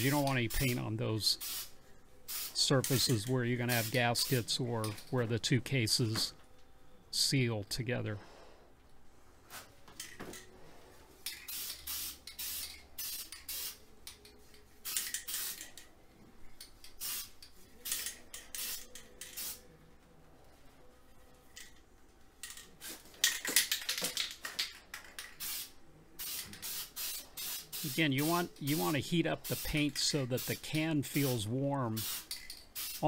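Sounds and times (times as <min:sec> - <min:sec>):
aerosol can spraying hissing bursts: 0:01.4 - 0:02.6, 0:11.5 - 0:13.8, 0:17.0 - 0:19.6, 0:25.4 - 0:28.5, 0:32.0 - 0:33.0.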